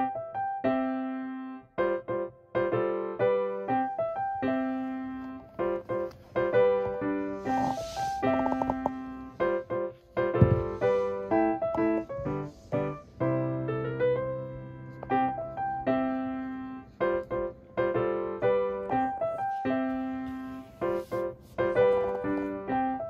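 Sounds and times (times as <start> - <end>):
piano melody: 0.0 - 23.0
low thump: 10.4 - 10.8.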